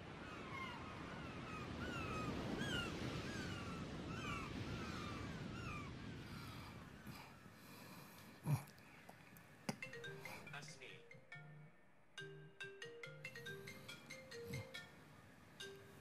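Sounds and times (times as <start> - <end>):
gulls calling: 0.0 - 8.6, 9.7 - 16.0
surf washing: 0.0 - 9.0.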